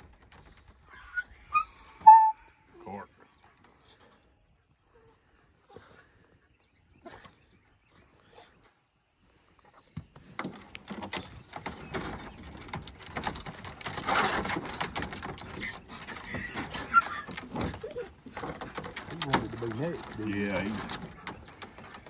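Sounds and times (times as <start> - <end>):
wire dog crate rattling: 10.7 - 22.0.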